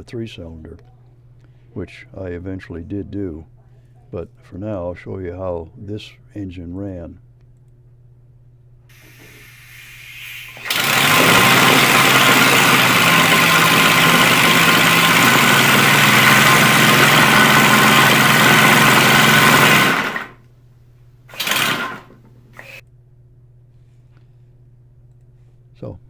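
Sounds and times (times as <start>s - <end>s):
brief burst of air: 8.9s - 10.7s
air engine hissing and pulsing: 8.9s - 20.3s.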